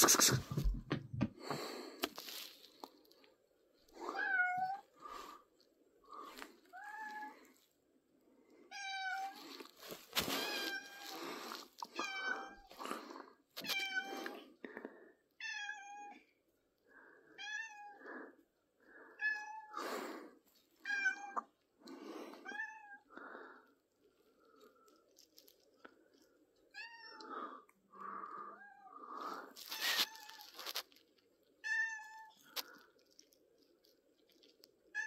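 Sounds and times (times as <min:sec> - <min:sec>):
cat meowing: 0:04.1 - 0:04.9, 0:17.4 - 0:18.0.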